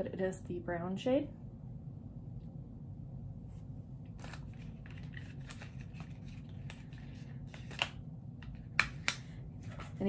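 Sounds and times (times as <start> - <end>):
hands rustling packaging: 4.0 - 10.0.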